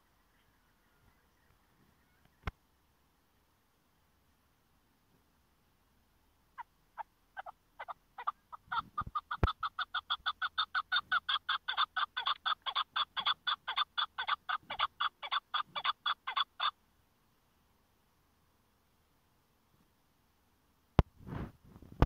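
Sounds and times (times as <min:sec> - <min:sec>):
partridge calling: 0:06.6 - 0:16.8.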